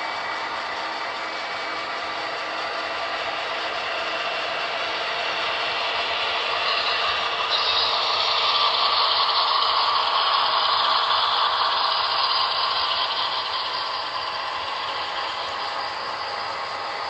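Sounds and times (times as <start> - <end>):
model train wheels rattling: 3.2 - 17.0.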